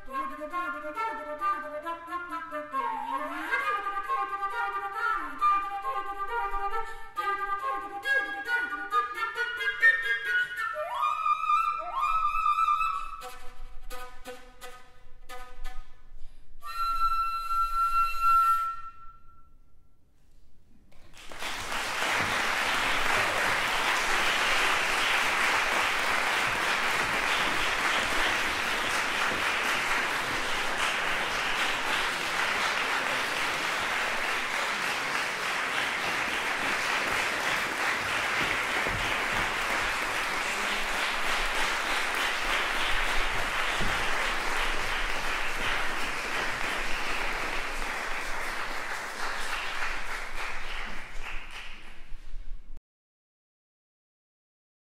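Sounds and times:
solo flute playing: 0.0s - 20.0s
audience applauding: 21.0s - 52.2s.

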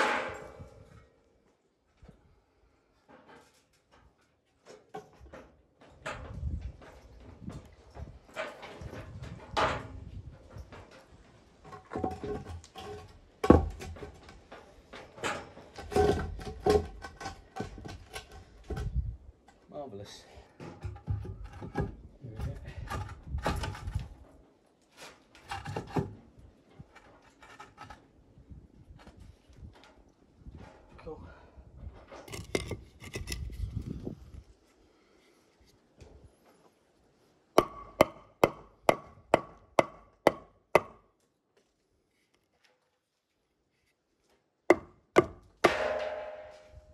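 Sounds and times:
hammer striking wooden pole: 37.6s - 41.0s, 44.7s - 46.8s.

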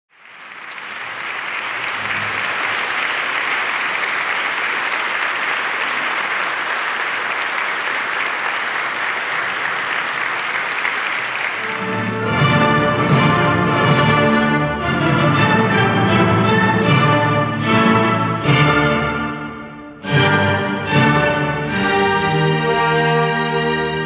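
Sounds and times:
audience applauding: 0.1s - 12.7s
orchestra playing: 9.3s - 24.0s.

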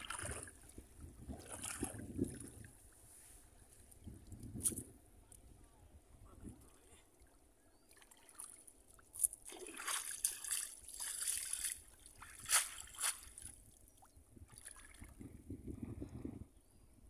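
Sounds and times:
floodwater sloshing and splashing: 0.0s - 4.6s, 6.4s - 15.4s.

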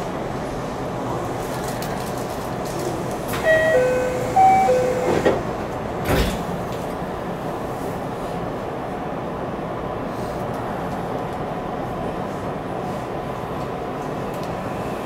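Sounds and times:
train car steady hum: 0.0s - 15.0s
sliding doors shutting with thud: 3.3s - 6.8s
two-note door chime: 3.4s - 5.4s
click: 14.3s - 14.6s.

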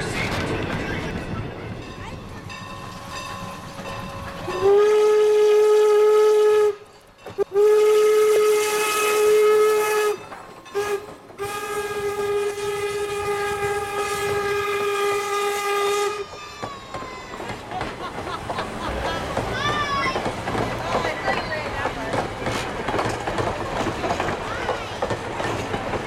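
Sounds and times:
steam whistle blasts: 4.5s - 6.8s, 7.4s - 10.2s, 10.8s - 16.3s.

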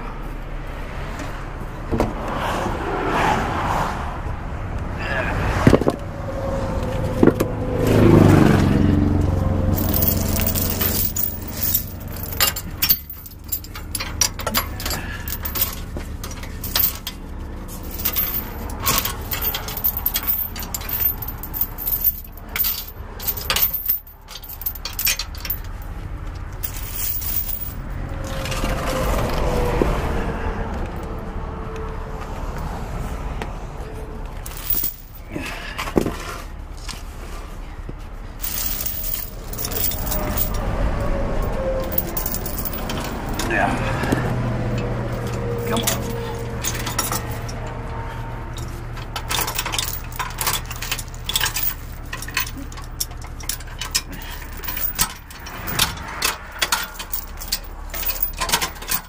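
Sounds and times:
traffic passing: 0.0s - 59.0s
steel chains rattling: 9.6s - 29.4s, 34.4s - 36.9s, 38.4s - 59.0s.

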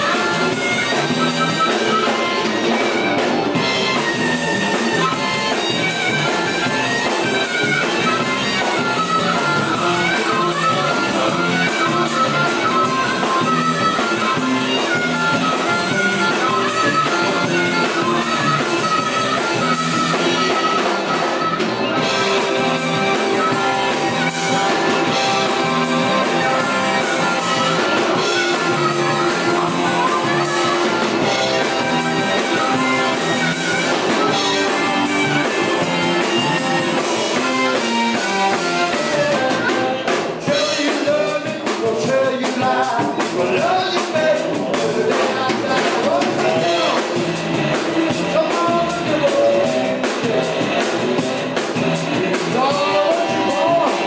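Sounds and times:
amplified harmonica solo: 0.0s - 41.8s, 43.2s - 54.0s
blues-rock band playing: 0.0s - 54.0s.

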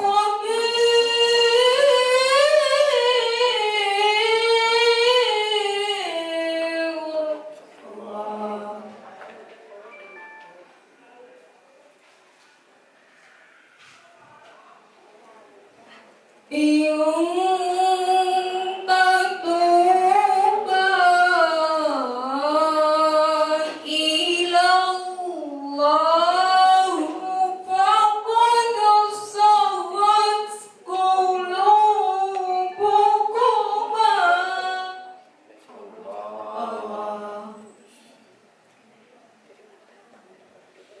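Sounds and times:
woman reciting melodically: 0.0s - 9.4s, 16.4s - 37.9s.

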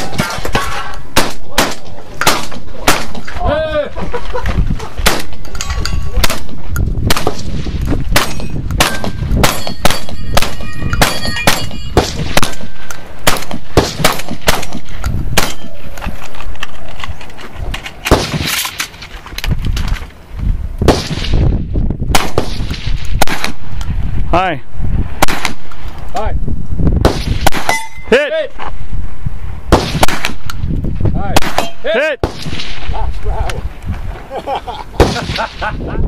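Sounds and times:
rapid gunshots: 6.2s - 15.6s, 29.7s - 30.5s, 35.0s - 35.6s
steel targets ringing: 8.3s - 12.1s, 27.7s - 28.2s.

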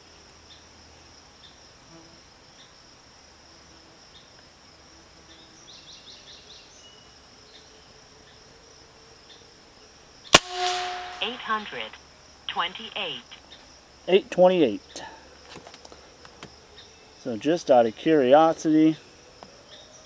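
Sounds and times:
high-pitched insect chorus: 0.1s - 20.0s
rising chirps: 10.4s - 12.0s.

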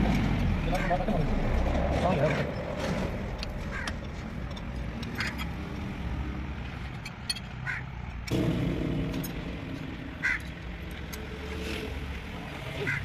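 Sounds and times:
steady low rumble: 8.3s - 12.2s.

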